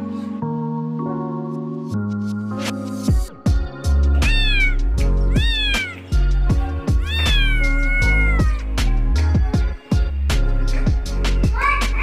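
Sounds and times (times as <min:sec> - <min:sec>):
background music: 0:00.0 - 0:12.0
kitten meowing: 0:04.2 - 0:06.2, 0:06.9 - 0:08.6.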